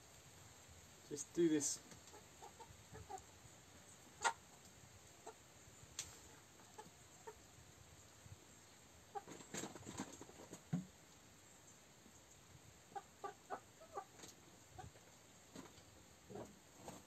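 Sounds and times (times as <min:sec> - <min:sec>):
chickens clucking: 0:01.9 - 0:07.6, 0:09.0 - 0:10.9, 0:12.0 - 0:17.0.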